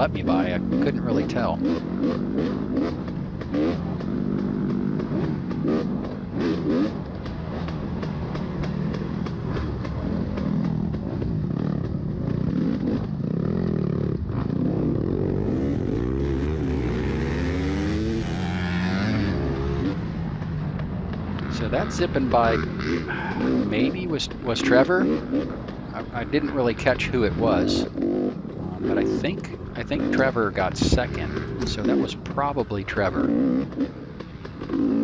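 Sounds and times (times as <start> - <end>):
two-stroke dirt bike revving: 0.0 - 35.0
dirt bike zipping past: 0.8 - 20.2.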